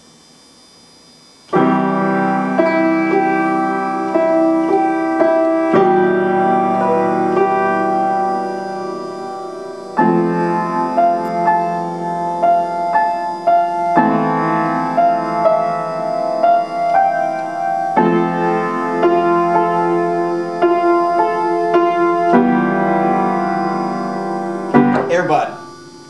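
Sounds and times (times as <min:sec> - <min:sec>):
piano chords: 0:01.5 - 0:26.0
piano melody of single notes: 0:01.5 - 0:26.0.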